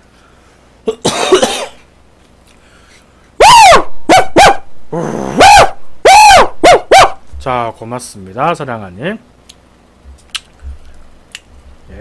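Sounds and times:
dog barking: 0:03.4 - 0:04.7, 0:05.4 - 0:07.2.

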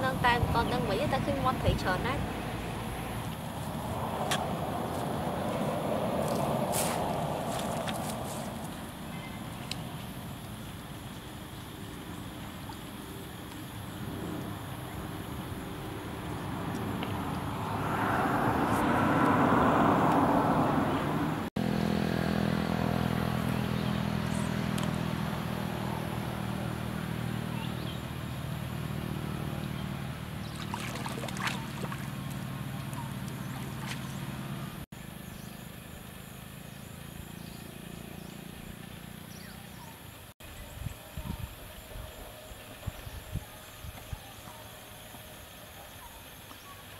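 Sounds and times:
low motor hum: 0:15.9 - 0:39.9.

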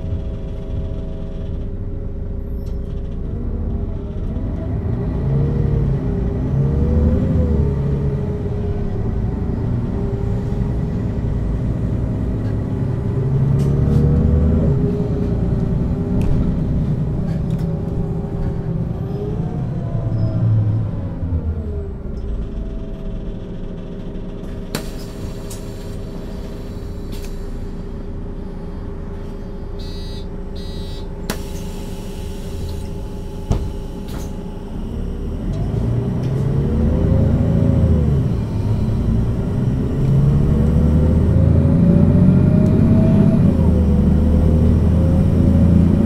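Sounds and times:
bus engine: 0:00.0 - 0:46.0
drivetrain whine: 0:00.0 - 0:46.0
short beeping: 0:29.8 - 0:31.1.

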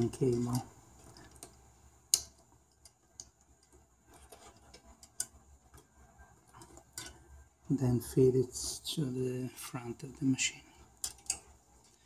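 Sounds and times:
connectors clicking and ticking: 0:00.0 - 0:07.4, 0:10.9 - 0:12.0.

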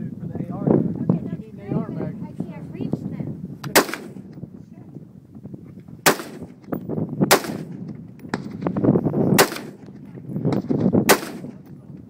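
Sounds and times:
rifle shots: 0:03.7 - 0:04.3, 0:06.0 - 0:11.6.

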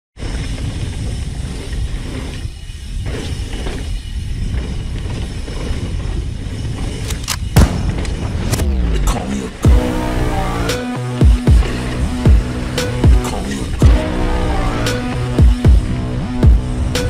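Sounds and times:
wind on camera: 0:00.2 - 0:09.6
bike tyres rumbling on gravel: 0:00.2 - 0:10.6, 0:11.2 - 0:14.8.

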